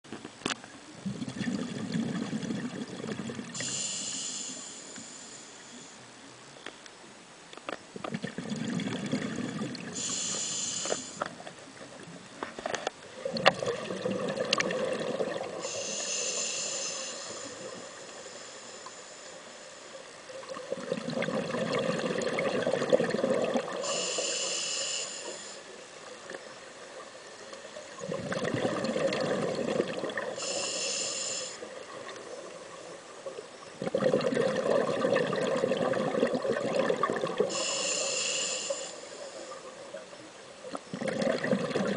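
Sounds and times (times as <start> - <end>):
exhaled bubbles rushing: 1.0 - 3.6, 8.1 - 10.0, 13.1 - 15.6, 20.4 - 23.8, 28.0 - 30.4, 33.8 - 37.5, 40.9 - 41.9
regulator inhale hiss: 3.6 - 6.1, 9.9 - 11.4, 15.6 - 20.2, 23.8 - 25.8, 30.3 - 31.8, 37.4 - 39.9.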